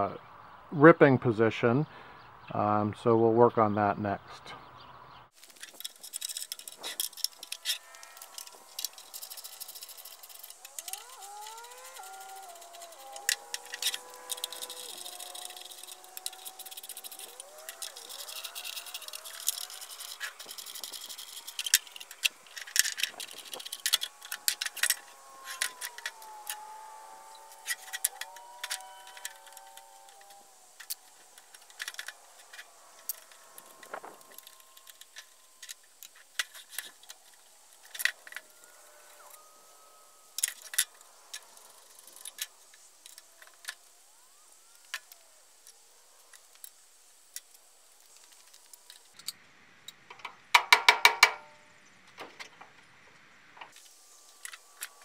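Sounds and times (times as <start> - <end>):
metal tools clinking: 5.4 - 43.9.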